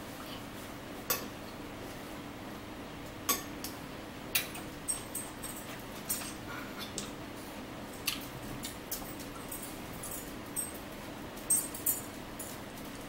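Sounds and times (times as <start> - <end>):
low room hum: 0.0 - 13.0
fork clinking against a plate: 1.1 - 1.4.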